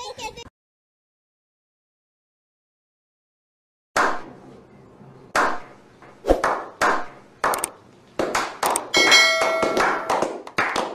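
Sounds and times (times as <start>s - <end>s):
sharp percussive hits: 8.4s - 10.4s
ringing chime-like tone: 9.0s - 10.1s.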